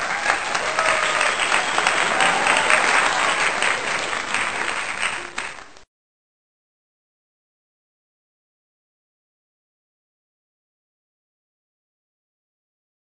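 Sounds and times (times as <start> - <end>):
crowd applause: 0.0 - 5.8.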